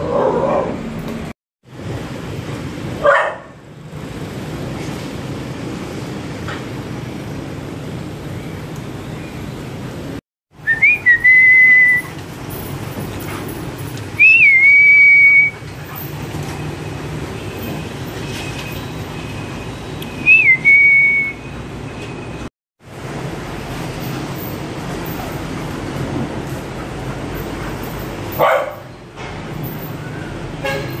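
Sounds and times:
person whistling: 10.6s - 12.1s, 14.2s - 15.6s, 20.2s - 21.4s.

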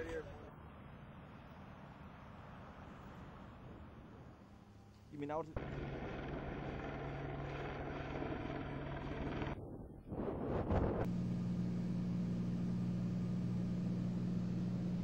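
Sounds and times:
helicopter drone: 5.6s - 9.6s
jumble of noise: 5.6s - 15.0s.

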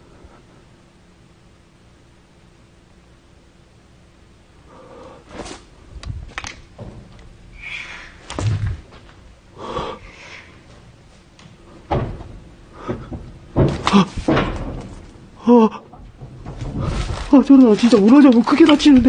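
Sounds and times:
knocks and dull thuds: 6.2s - 7.2s, 8.3s - 9.2s, 10.7s - 17.4s.

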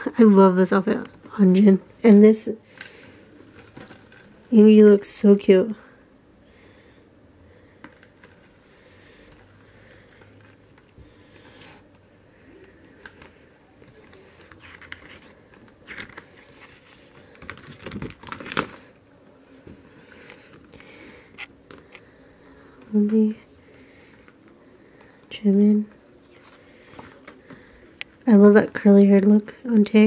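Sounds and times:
paper pages rustling: 12.6s - 22.0s.

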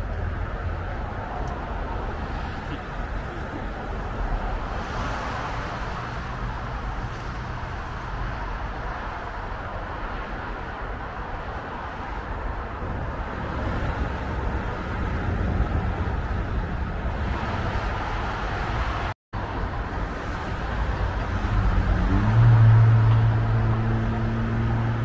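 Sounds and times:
highway traffic: 0.0s - 25.0s
low engine hum: 12.8s - 25.0s.

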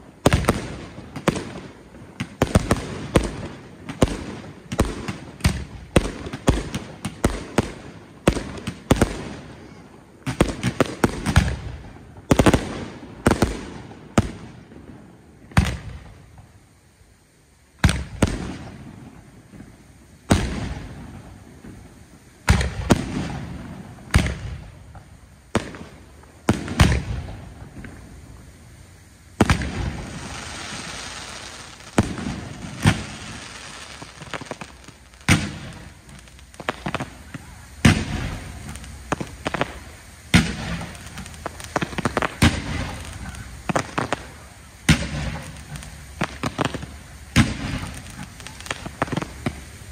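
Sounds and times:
fireworks bursting with echo: 0.0s - 49.9s.

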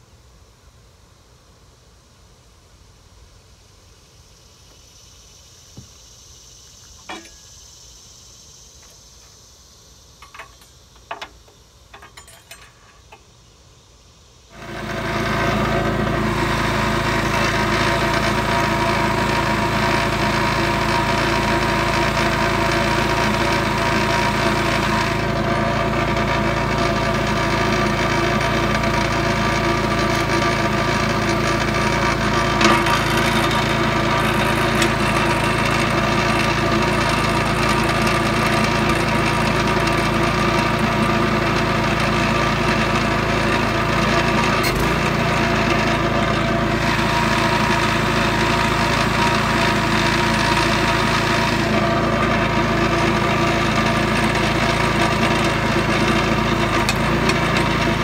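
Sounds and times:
small gas engine running: 14.5s - 58.0s.

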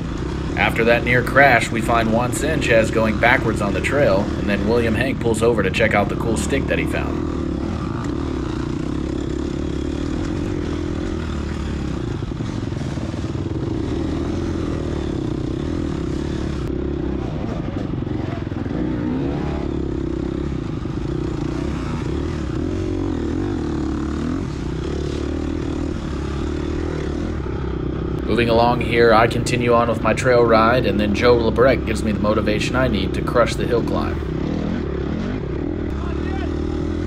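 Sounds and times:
dirt bike engine running: 0.0s - 37.0s.

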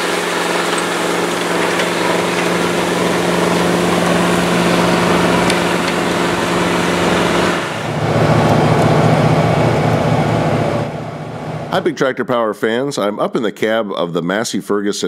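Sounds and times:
low pulsing engine sound: 0.0s - 11.8s
tractor diesel engines under load: 0.0s - 11.8s.

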